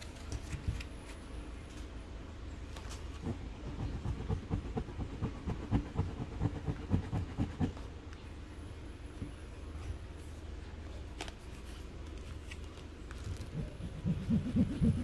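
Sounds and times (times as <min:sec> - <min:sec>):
fingertip rubbing on fabric: 0:03.2 - 0:07.8, 0:13.5 - 0:15.0.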